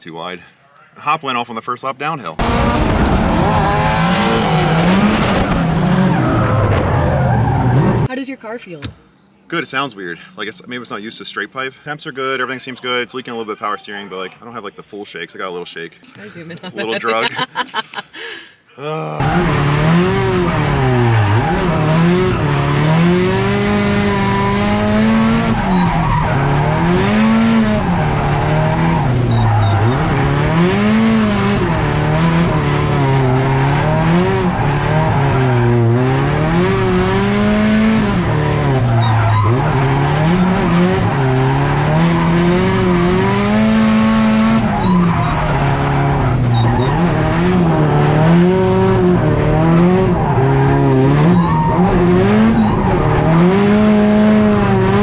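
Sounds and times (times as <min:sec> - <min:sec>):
car engine revving: 0:02.4 - 0:08.1, 0:19.2 - 0:55.0
tyres squealing: 0:23.8 - 0:30.4, 0:38.7 - 0:42.4, 0:44.6 - 0:47.8.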